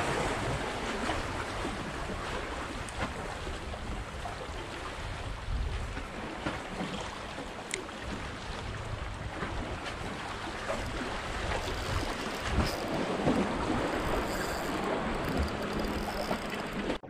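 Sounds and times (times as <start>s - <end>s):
sea waves washing against concrete: 0.0s - 17.0s
wind buffeting microphone: 8.5s - 17.0s.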